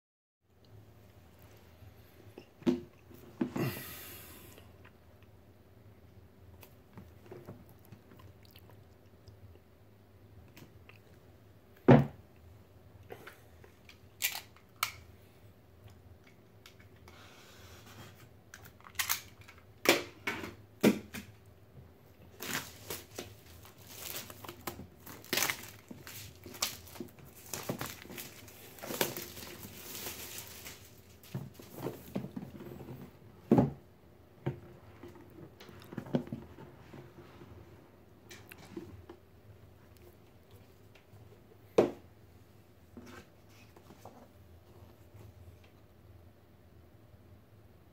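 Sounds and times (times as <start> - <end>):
plastic shrink wrap tearing: 22.3 - 31.3.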